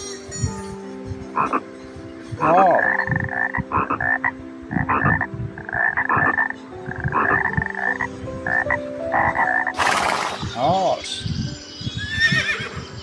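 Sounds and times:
frog croaking: 1.4 - 1.7, 2.4 - 10.7.

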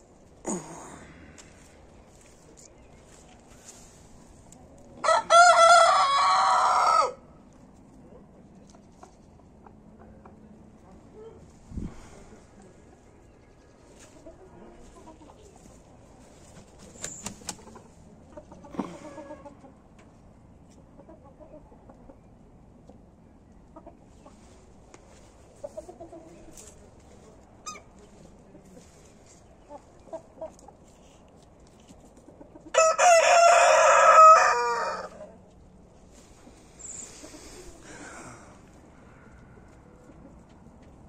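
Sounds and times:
chickens clucking quietly: 0.0 - 41.0
rooster crowing: 5.0 - 7.2, 32.7 - 35.2.

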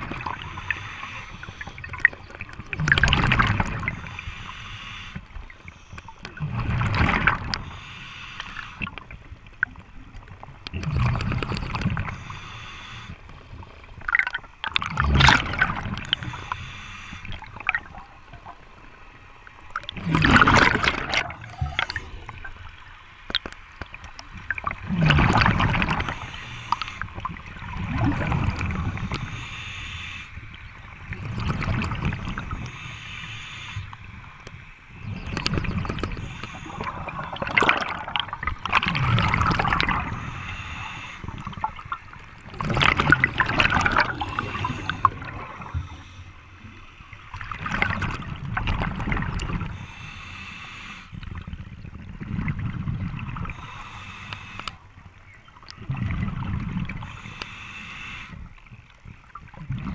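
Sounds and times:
underwater bubbles gurgling: 0.0 - 59.9
regulator hiss: 0.2 - 1.8, 3.9 - 6.1, 7.6 - 8.8, 12.1 - 13.2, 16.1 - 17.5, 25.9 - 27.1, 28.8 - 30.4, 32.2 - 34.0, 36.2 - 37.2, 40.0 - 41.5, 49.7 - 51.2, 53.5 - 54.8, 57.0 - 58.4.

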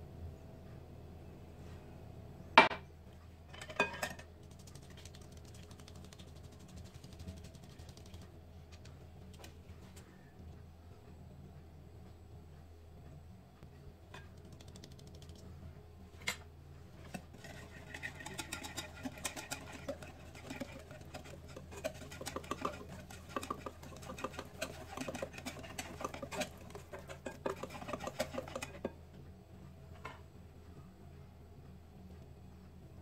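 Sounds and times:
wet stirring: 3.7 - 8.3, 17.0 - 29.0
whisk clattering against glass bowl: 17.4 - 28.9.

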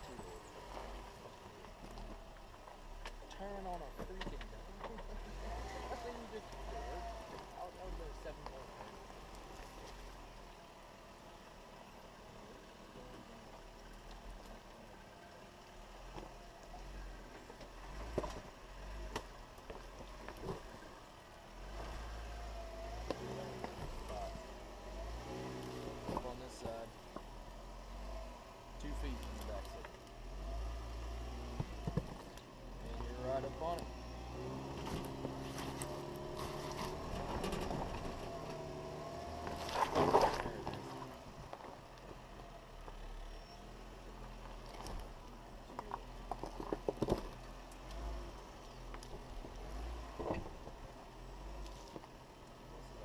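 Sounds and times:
low engine hum: 0.0 - 53.0
rocks crunching under tyres: 16.0 - 53.0
loud grinding crunch: 34.4 - 41.7.

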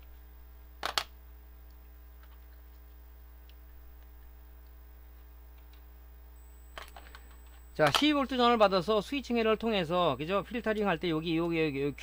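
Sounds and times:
low mains hum: 0.0 - 12.0.

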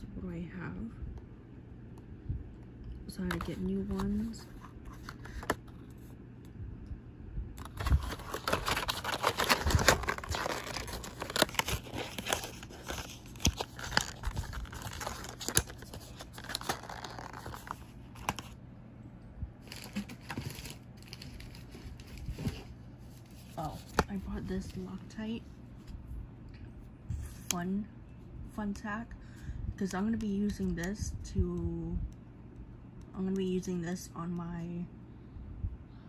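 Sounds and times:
packaging crinkling and tearing: 7.6 - 18.6, 19.6 - 22.6.

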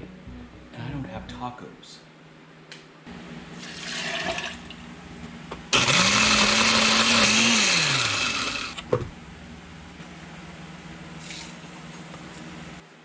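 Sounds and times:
blender motor running: 5.7 - 8.8.

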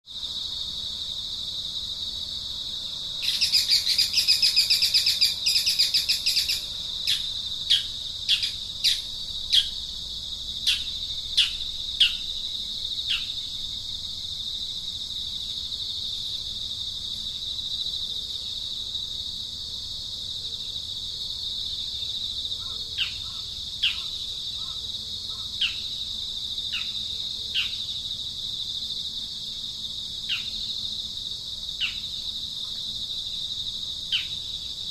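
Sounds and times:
insect drone: 0.0 - 34.9
bird chattering: 3.2 - 9.7.

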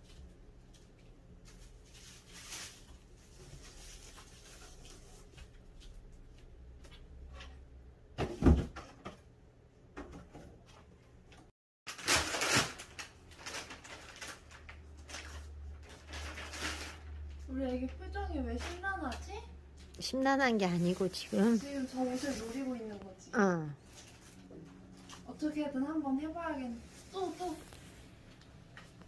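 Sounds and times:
plastic bag rustling and crinkling: 0.0 - 6.0, 11.9 - 29.0
plastic being torn: 11.9 - 17.2.

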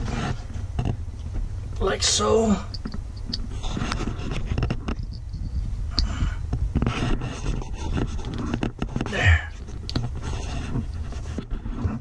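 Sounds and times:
fingers rustling wires: 0.0 - 12.0
steady low rumble: 0.0 - 12.0.

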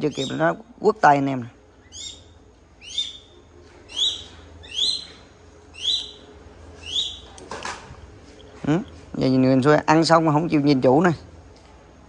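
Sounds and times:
hawk calling: 1.8 - 7.4.

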